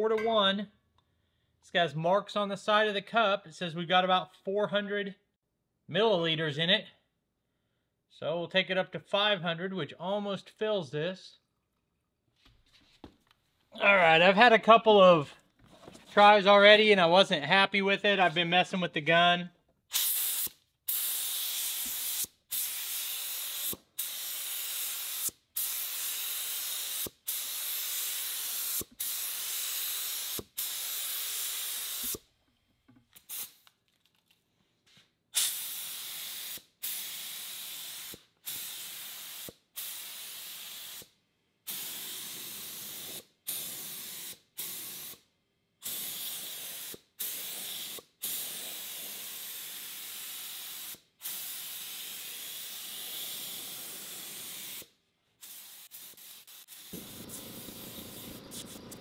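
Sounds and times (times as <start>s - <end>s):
spray gun hissing: 20.0s - 32.2s, 35.4s - 41.0s, 41.7s - 45.2s, 45.8s - 59.0s.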